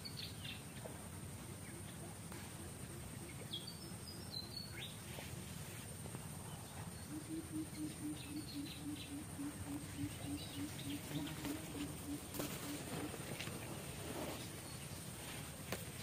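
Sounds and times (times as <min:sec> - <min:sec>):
high insect whine: 0:00.0 - 0:16.0
bird chirps: 0:06.5 - 0:13.1
low pulsing animal call: 0:06.9 - 0:13.4.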